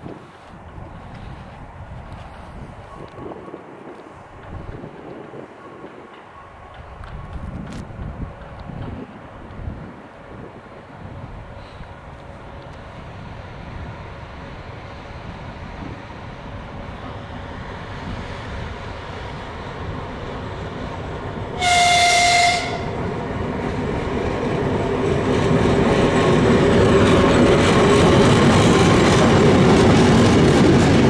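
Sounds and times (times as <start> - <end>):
diesel locomotive engines: 0.0 - 31.0
train wheels rolling: 0.0 - 31.0
high locomotive horn blast: 21.6 - 23.0.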